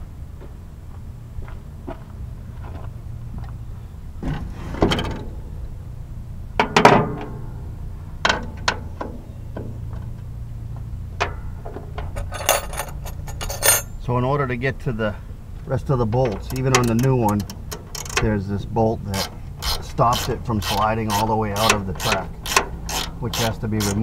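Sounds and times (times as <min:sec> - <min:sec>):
steady low hum: 0:00.0 - 0:24.0
metal clanks and knocks: 0:06.6 - 0:07.6, 0:08.2 - 0:10.2, 0:11.2 - 0:14.0, 0:21.1 - 0:24.0.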